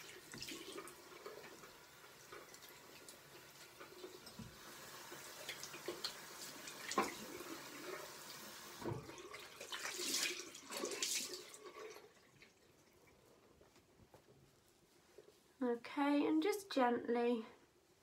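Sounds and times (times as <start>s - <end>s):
water running in a sink: 0.0s - 13.3s.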